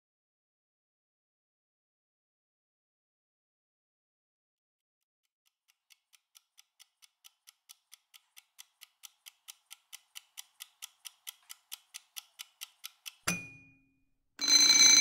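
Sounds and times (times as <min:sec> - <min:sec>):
kitchen timer ticking: 0:05.5 - 0:13.7.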